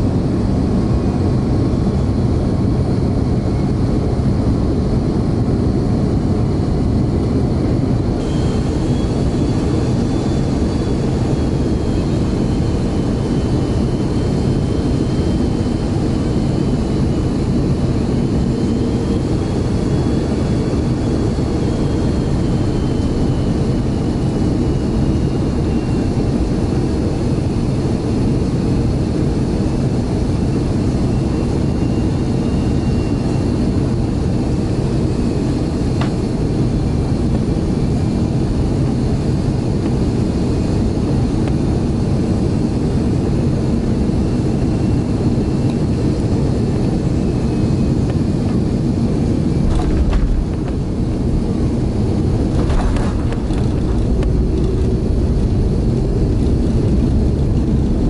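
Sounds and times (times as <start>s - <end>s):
airliner cabin roar: 0.0s - 58.0s
faint whine: 0.2s - 27.8s, 29.8s - 58.0s.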